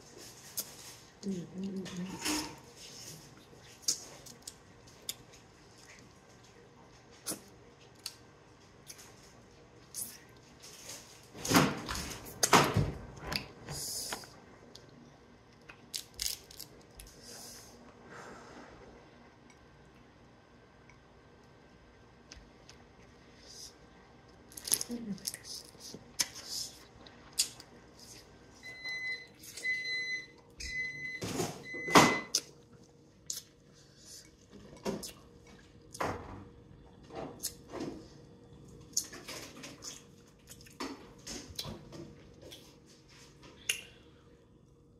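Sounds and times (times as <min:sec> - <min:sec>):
electronic appliance beeps: 0:28.6 - 0:32.4.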